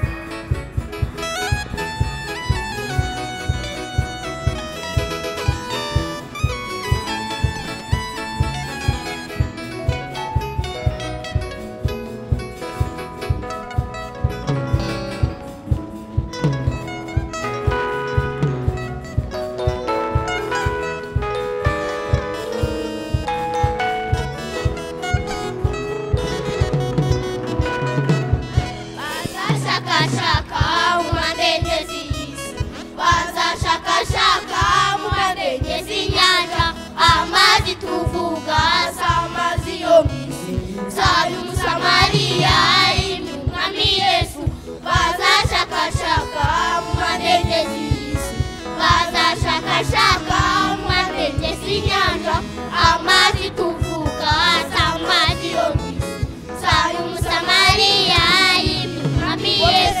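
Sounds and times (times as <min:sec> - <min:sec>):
backing music with steady beat: 0:00.0 - 1:00.0
child singing: 0:29.0 - 0:32.4, 0:33.0 - 0:56.0, 0:56.6 - 1:00.0.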